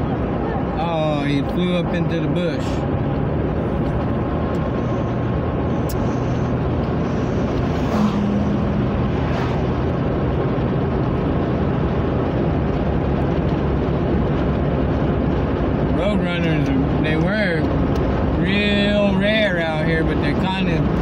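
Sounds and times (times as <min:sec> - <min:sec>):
low engine hum: 0:00.0 - 0:21.0
road and wind noise in car: 0:00.0 - 0:21.0.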